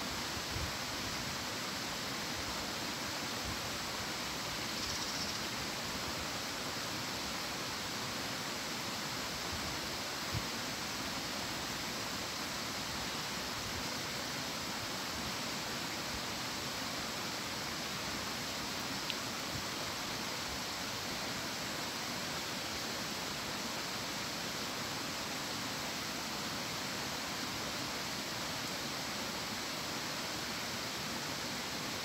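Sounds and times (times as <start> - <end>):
faint click: 19.0 - 19.2.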